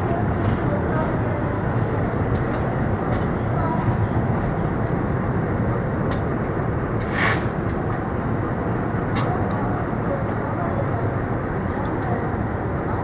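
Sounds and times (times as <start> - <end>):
train wheels rumbling on rail: 0.0 - 13.0
short hiss: 7.0 - 7.6.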